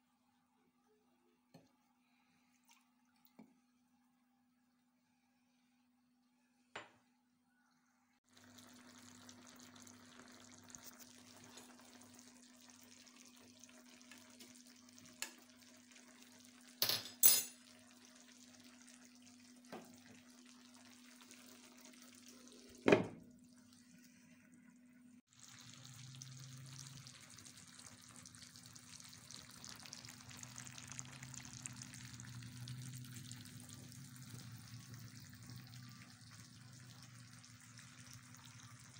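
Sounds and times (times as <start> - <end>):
food simmering with sizzling hiss: 8.0 - 16.8, 17.5 - 38.9.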